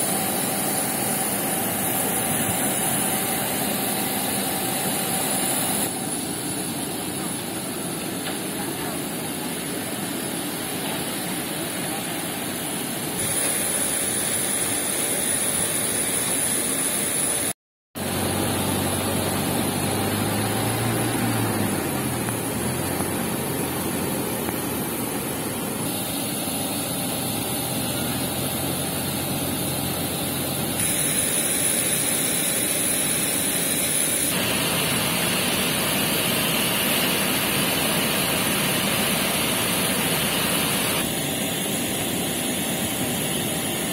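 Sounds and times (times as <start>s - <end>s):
low engine hum: 18.0s - 25.8s.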